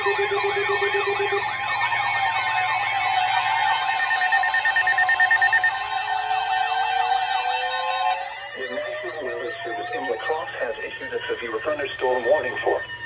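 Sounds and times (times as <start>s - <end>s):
higher pulsed beep: 0.0s - 9.9s
low pulsed beep: 0.0s - 13.0s
warbling radio alarms: 0.0s - 13.0s.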